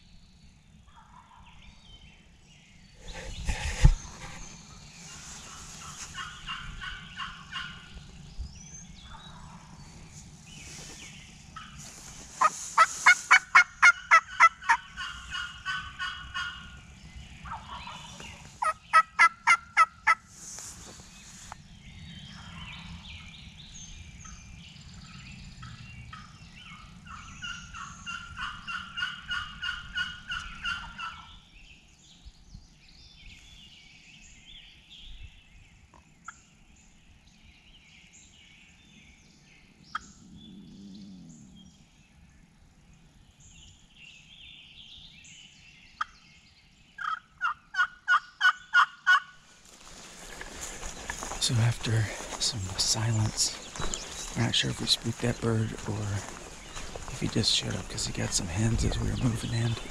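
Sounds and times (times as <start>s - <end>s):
turkey gobbling: 5.8s - 7.8s, 12.4s - 16.7s, 17.5s - 20.2s, 27.1s - 31.3s, 47.0s - 49.4s.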